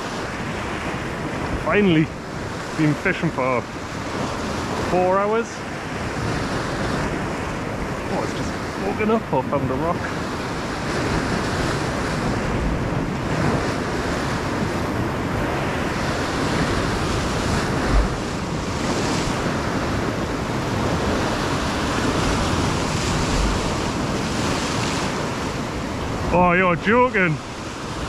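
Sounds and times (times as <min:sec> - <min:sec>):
surf washing over rocks: 0:00.0 - 0:28.0
wind thumping on microphone: 0:05.6 - 0:26.4.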